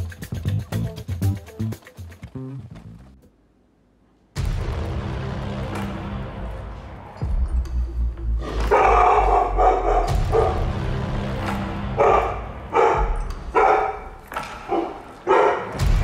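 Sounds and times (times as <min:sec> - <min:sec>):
dog barking: 0:08.7 - 0:10.7, 0:11.9 - 0:15.9.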